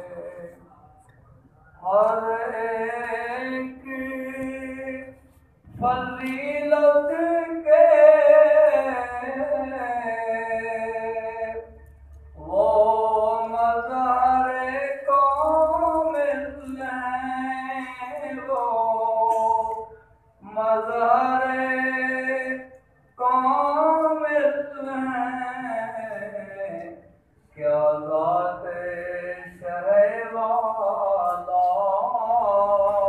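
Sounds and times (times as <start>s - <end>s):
man singing unaccompanied: 0.0s - 0.6s, 1.8s - 11.8s, 12.4s - 33.0s.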